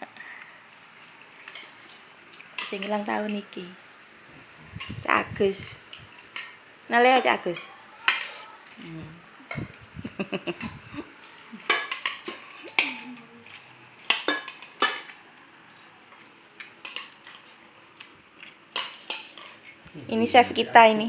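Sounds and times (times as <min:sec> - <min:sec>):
spoons clinking against plates: 0:01.4 - 0:02.0, 0:07.5 - 0:08.5, 0:11.6 - 0:15.2, 0:18.4 - 0:19.7.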